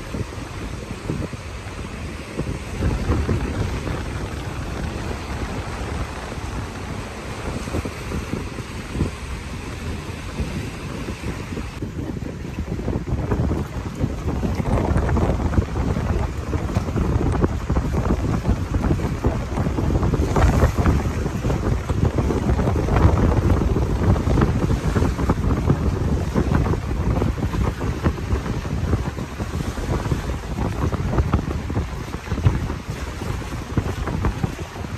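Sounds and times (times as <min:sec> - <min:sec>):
water lapping and splashing: 0:00.0 - 0:34.9
wind buffeting microphone: 0:00.0 - 0:34.9.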